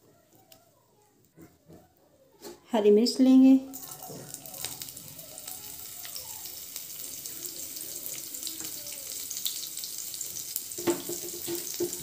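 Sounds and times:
food sizzling in hot oil: 0:03.7 - 0:12.0.

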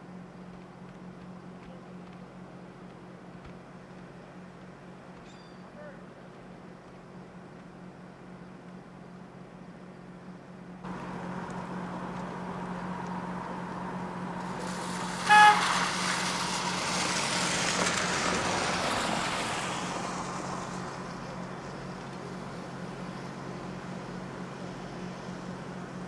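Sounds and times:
steady low hum: 0:00.0 - 0:26.0
passing vehicle road noise: 0:10.8 - 0:23.3
vehicle horn toot: 0:14.8 - 0:16.3.

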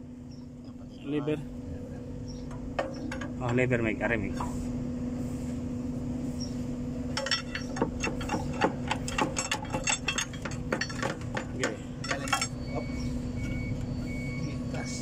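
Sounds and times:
steady low hum: 0:00.0 - 0:15.0
metallic clinks and knocks: 0:07.1 - 0:13.6.

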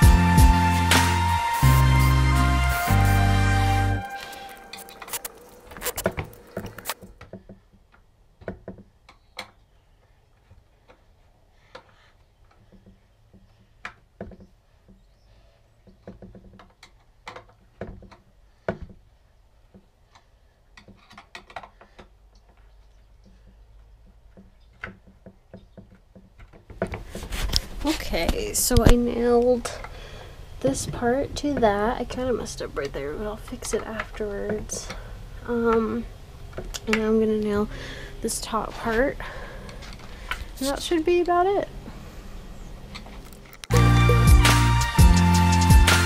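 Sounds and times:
wooden pieces clicking and knocking: 0:15.8 - 0:19.0, 0:19.7 - 0:27.7.

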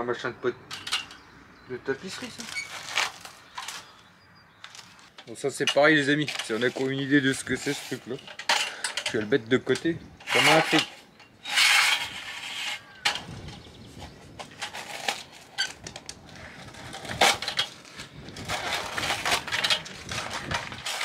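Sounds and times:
metal hose fittings clicking and rattling: 0:00.7 - 0:01.2, 0:04.7 - 0:12.0.

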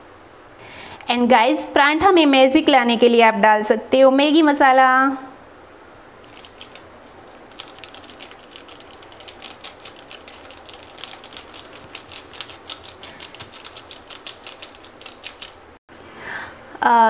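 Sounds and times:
paper sachet crackling: 0:06.2 - 0:15.7.

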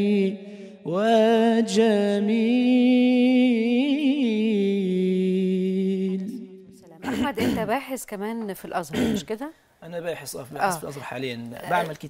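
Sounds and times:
man singing religious praise song: 0:00.0 - 0:06.6.

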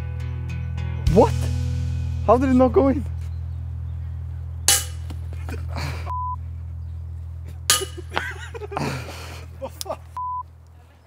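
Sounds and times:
low hum: 0:01.6 - 0:10.7
disc hitting metal basket: 0:04.7 - 0:05.3, 0:07.7 - 0:08.3
short steady beep: 0:06.1 - 0:06.4, 0:10.2 - 0:10.4.

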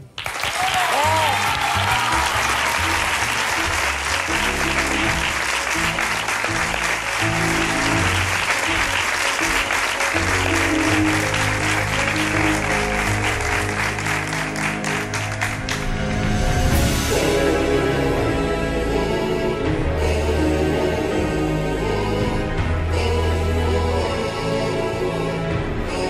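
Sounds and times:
audience applauding: 0:00.0 - 0:16.4.

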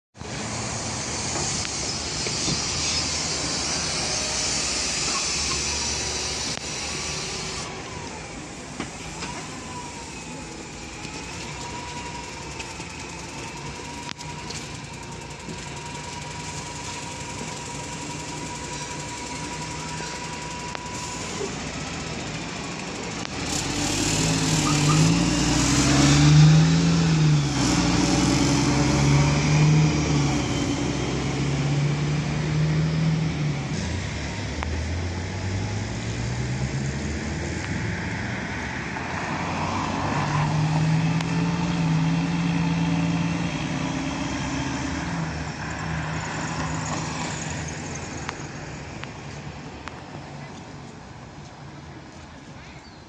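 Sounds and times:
bus engine shifting gears: 0:00.2 - 0:52.3.

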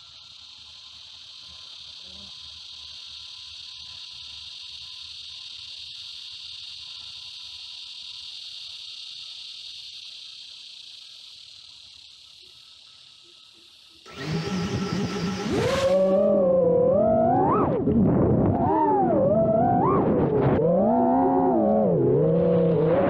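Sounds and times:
insects buzzing: 0:00.0 - 0:23.0
drone motors whining: 0:12.4 - 0:23.0.

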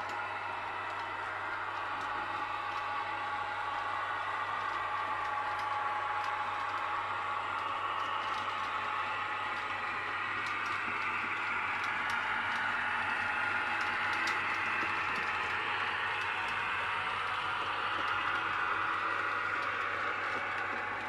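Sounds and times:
model locomotive motor whine: 0:00.0 - 0:21.0
model wagons rattling on rails: 0:00.0 - 0:21.0.

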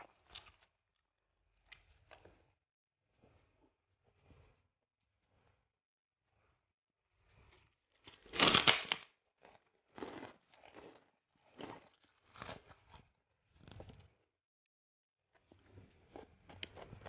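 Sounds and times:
cracker crunching by hand: 0:08.1 - 0:11.0.

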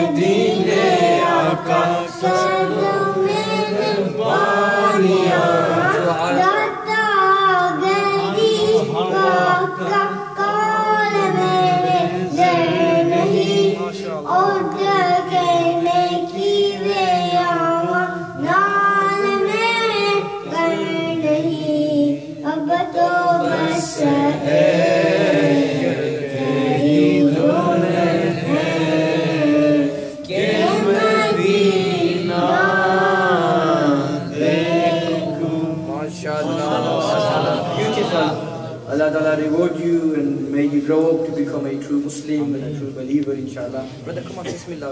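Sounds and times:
boy singing into a microphone: 0:00.0 - 0:35.5.

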